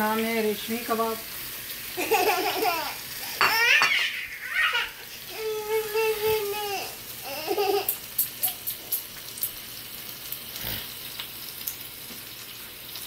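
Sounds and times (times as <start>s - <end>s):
onions sizzling in a frying pan: 0.0s - 13.0s
child's voice: 4.7s - 7.8s.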